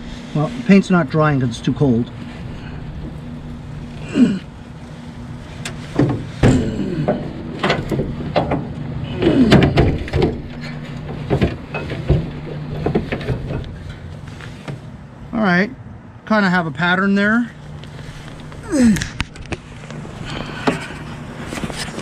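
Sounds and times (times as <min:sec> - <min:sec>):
steady low hum: 0:00.0 - 0:22.0
metal clunks and knocks: 0:05.6 - 0:14.8.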